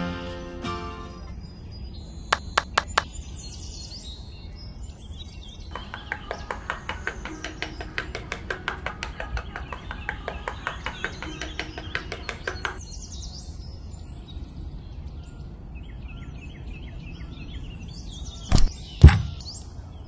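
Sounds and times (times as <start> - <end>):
birds chirping: 0.2 - 3.9, 5.7 - 13.3
sharp clicks: 2.4 - 3.1.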